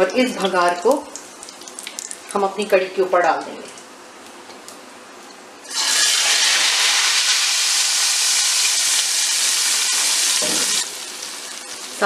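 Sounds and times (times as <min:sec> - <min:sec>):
hot oil sizzling: 0:05.6 - 0:12.0.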